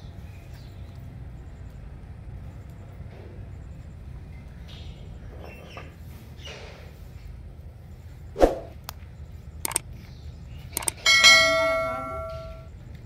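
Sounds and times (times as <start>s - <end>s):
sharp clicks: 9.6s - 9.9s, 10.7s - 11.0s
notification bell chime: 11.1s - 12.7s.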